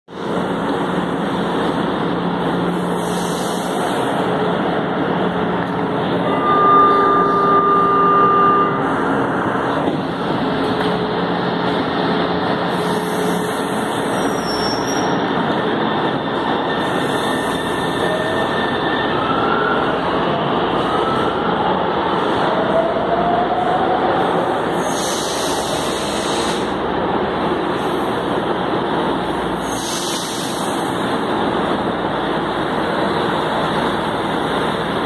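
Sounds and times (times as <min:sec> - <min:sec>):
electric train rumble and hiss: 0:00.1 - 0:18.6, 0:21.8 - 0:35.0
held tone: 0:06.2 - 0:09.7.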